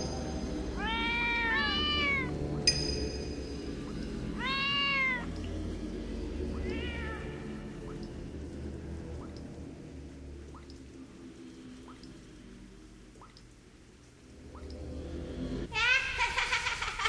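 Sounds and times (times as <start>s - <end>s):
low steady drone: 0.0s - 16.2s
cat meowing: 0.8s - 2.3s, 4.3s - 5.4s, 6.5s - 8.0s.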